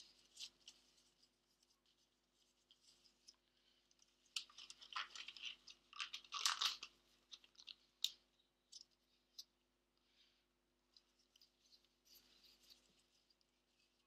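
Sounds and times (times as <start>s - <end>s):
gloves crinkly rustling: 0.0s - 9.4s.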